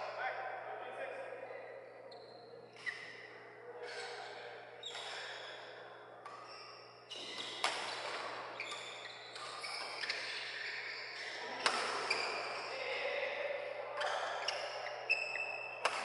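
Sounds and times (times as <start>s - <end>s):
shoes squeaking on court: 2.1s - 13.1s, 13.9s - 16.0s
racket striking shuttlecock: 7.6s - 8.2s, 11.6s - 12.1s, 15.8s - 16.0s.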